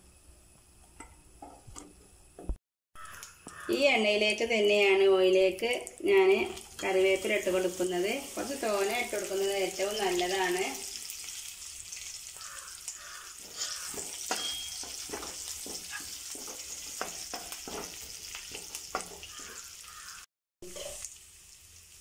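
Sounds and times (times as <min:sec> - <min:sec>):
leaves frying in oil: 0:03.0 - 0:22.0
metal spatula scraping a pan: 0:11.0 - 0:21.0.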